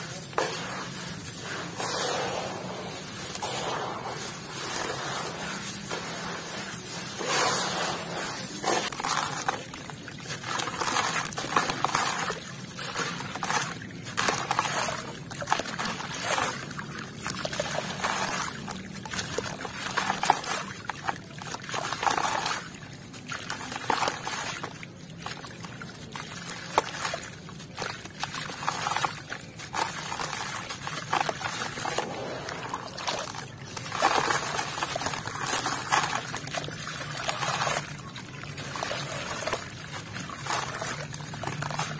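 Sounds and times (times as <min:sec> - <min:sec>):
hands crumbling wet sand: 0:00.0 - 0:18.7
water splashing into basin: 0:00.0 - 0:41.9.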